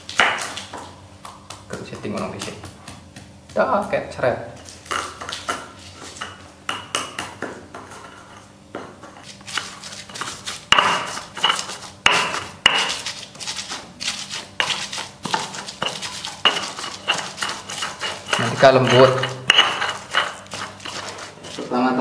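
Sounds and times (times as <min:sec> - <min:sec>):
stone pestle pounding in mortar: 0:00.2 - 0:04.0, 0:08.7 - 0:21.7.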